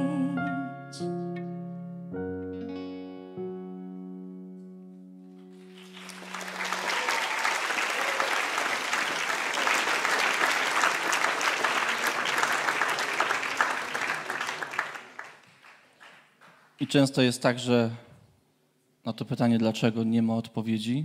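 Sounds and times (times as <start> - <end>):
audience applauding: 5.5 - 16.8.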